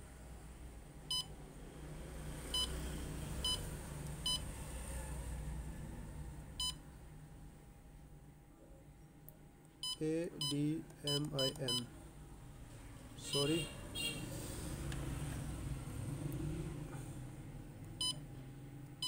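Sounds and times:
copier touchscreen key beeps: 9.8s - 11.9s, 13.3s - 13.6s.

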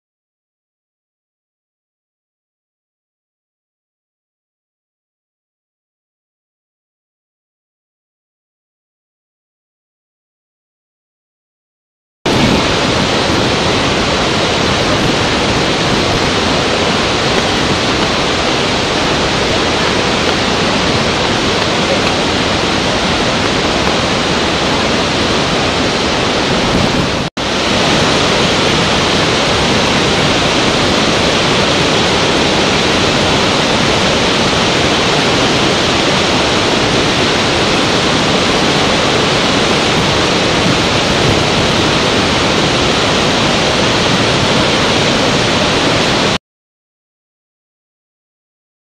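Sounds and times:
waterfall and rapids rushing: 12.3s - 46.4s.

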